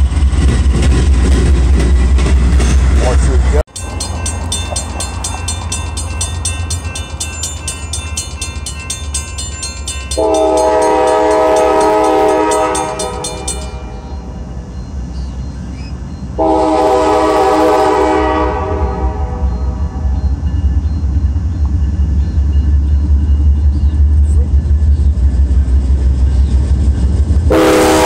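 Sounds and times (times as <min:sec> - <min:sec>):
railroad crossing bell ringing: 0:02.6 - 0:25.0
train horn blasts: 0:10.2 - 0:14.1, 0:16.4 - 0:20.1, 0:27.5 - 0:28.0.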